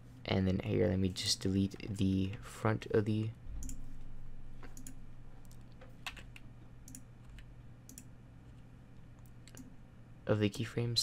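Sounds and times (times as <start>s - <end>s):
low electrical hum: 0.0s - 11.0s
computer mouse and keyboard clicking: 4.6s - 8.1s.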